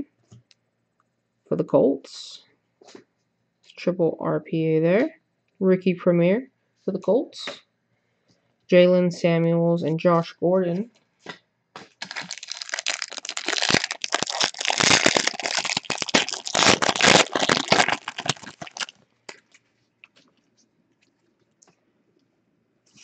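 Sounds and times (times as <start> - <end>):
plastic wrapper crinkling and tearing: 11.9 - 20.3.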